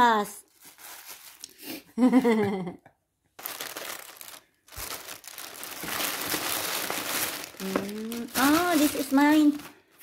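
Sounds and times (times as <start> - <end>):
plastic bag rustling: 0.5 - 1.5, 3.4 - 10.0
person speaking: 7.6 - 9.8.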